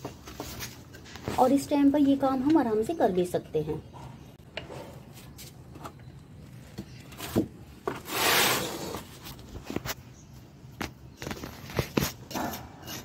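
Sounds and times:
scoop scraping soil in a pot: 7.9s - 9.3s.

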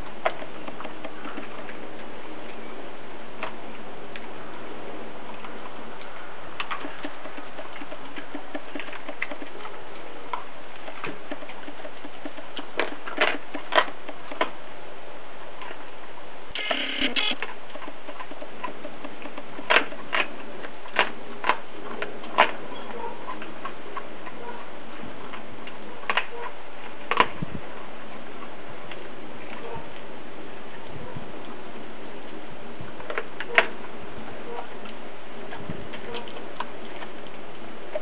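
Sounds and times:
dog chewing bone: 0.0s - 2.6s, 5.3s - 14.6s, 16.6s - 30.0s, 34.6s - 38.0s.

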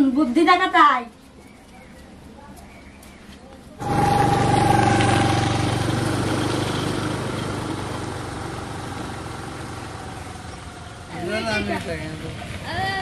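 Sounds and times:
motor scooter engine riding away: 3.8s - 13.0s.

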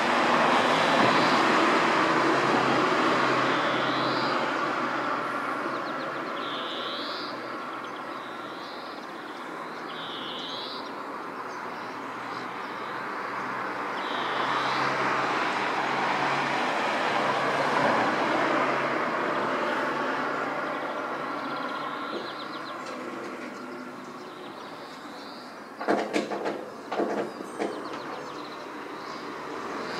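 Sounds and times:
passing vehicle hum: 0.0s - 29.9s
short high bird calls: 6.2s - 11.0s.

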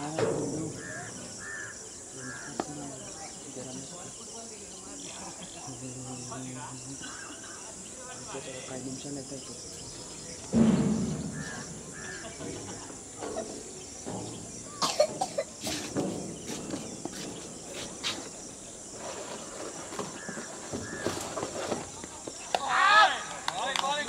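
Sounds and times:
loud thump: 0.0s - 1.2s, 10.4s - 13.4s
insect drone: 0.0s - 24.0s.

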